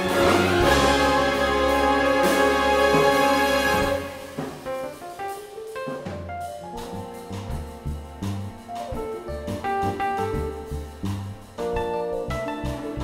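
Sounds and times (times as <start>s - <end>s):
double bass: 0.0s - 5.4s, 6.0s - 13.0s
big band and orchestra chord: 0.0s - 5.7s
light drums: 0.0s - 13.0s
piano: 0.0s - 13.0s.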